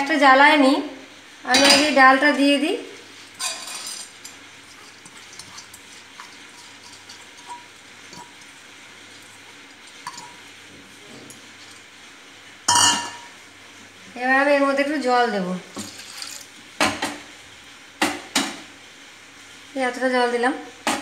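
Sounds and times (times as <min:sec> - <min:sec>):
lentils scraped into a pan: 0:03.1 - 0:11.9, 0:15.8 - 0:16.5
bowl clinking against pan: 0:10.0 - 0:10.4, 0:12.7 - 0:13.4.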